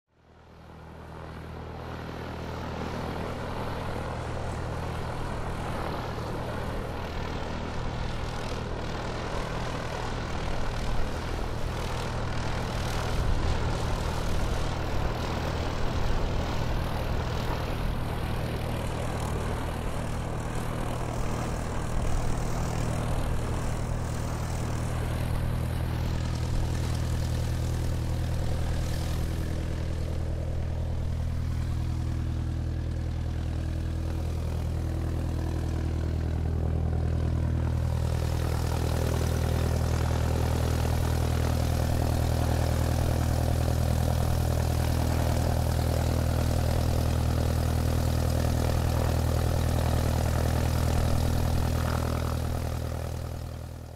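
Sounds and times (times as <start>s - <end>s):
airplane engines running: 0.1s - 53.9s.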